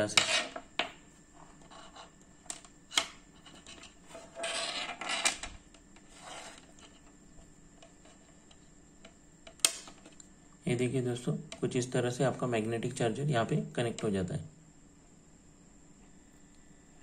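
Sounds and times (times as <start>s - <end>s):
cable rubbing on table: 0.1s - 0.7s, 1.4s - 2.2s, 3.3s - 5.4s, 6.0s - 8.4s.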